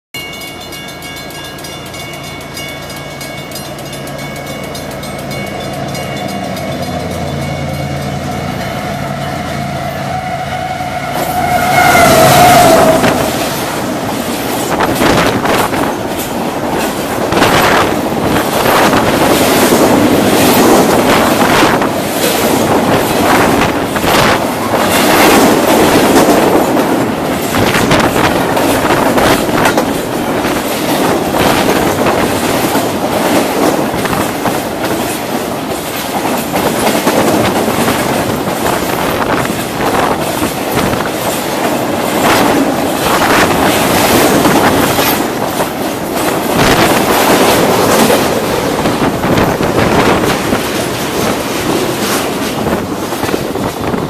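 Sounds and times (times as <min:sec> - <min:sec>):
train rumbling past: 0:00.2 - 0:54.0
wheels clattering over rail joints: 0:11.4 - 0:54.0.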